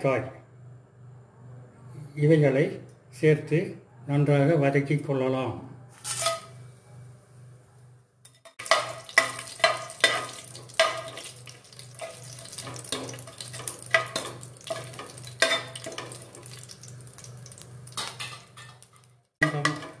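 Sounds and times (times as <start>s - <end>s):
spoon clinking and scraping pot: 6.1s - 6.6s, 8.3s - 16.6s, 18.0s - 20.0s
spices sizzling in hot oil: 8.4s - 20.0s.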